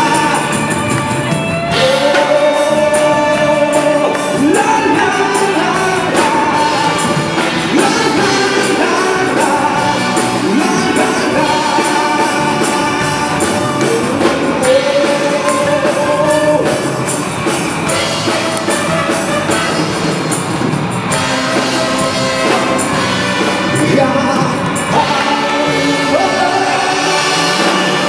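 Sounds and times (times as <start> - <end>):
man singing into a microphone: 0.0 - 17.1, 23.4 - 28.0
saxophone band playing pop-rock: 0.0 - 28.0.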